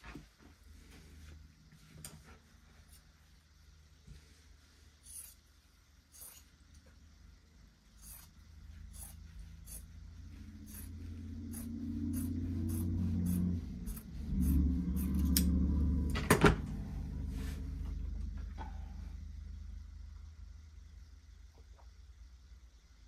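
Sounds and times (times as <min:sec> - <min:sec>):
low rumble: 0:08.6 - 0:21.2.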